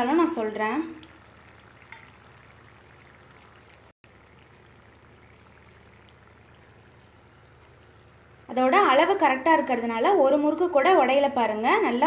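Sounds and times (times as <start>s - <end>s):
food sizzling in oil: 0.0s - 9.5s.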